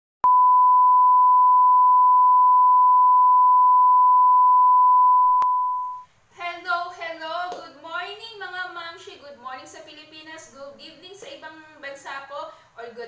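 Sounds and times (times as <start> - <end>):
steady test tone beep: 0.2 - 6.0.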